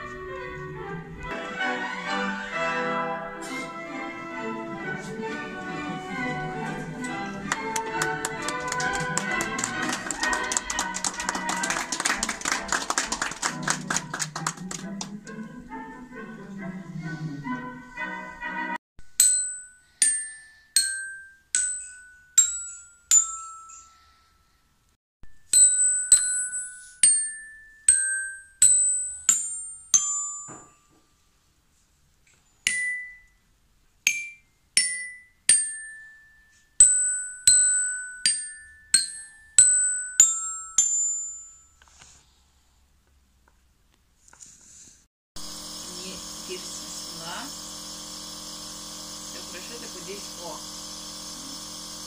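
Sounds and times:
toy glockenspiel notes: 19.1 - 31.0, 32.6 - 33.5, 34.1 - 41.9.

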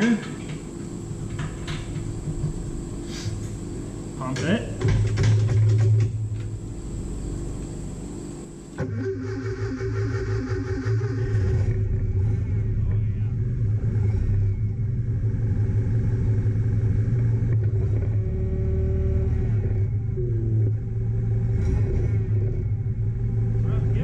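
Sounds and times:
forklift engine idling: 8.8 - 24.0.

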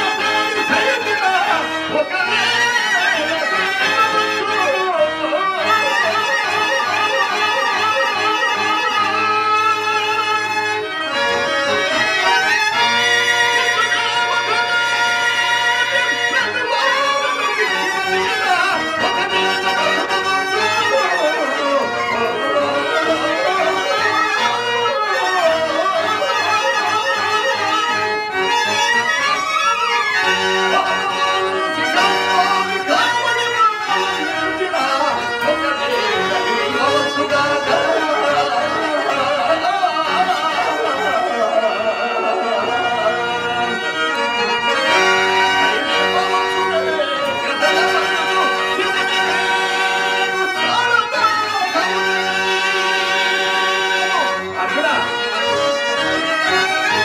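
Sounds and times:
harmonium: 0.0 - 57.0
man singing into a microphone: 0.1 - 9.7, 15.8 - 28.0, 28.7 - 43.9.

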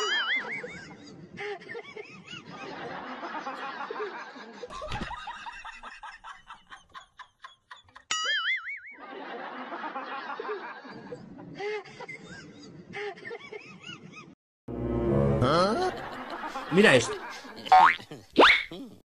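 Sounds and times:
person laughing: 15.6 - 19.0.

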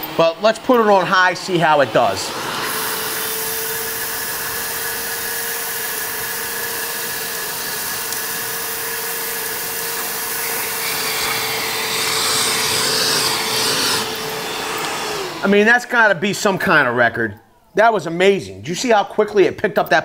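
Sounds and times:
wet dry vacuum whining: 0.0 - 19.4
sand sucked up hose: 0.2 - 15.8.

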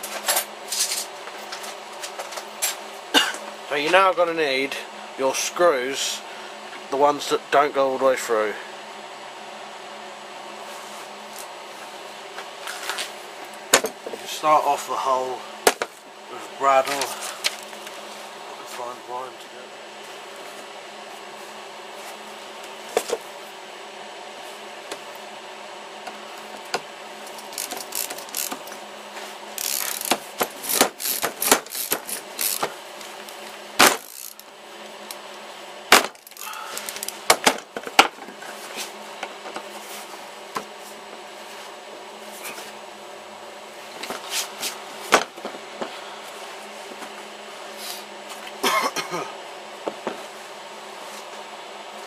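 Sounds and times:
bradawl twisting into wood: 27.3 - 28.7, 29.6 - 32.7.

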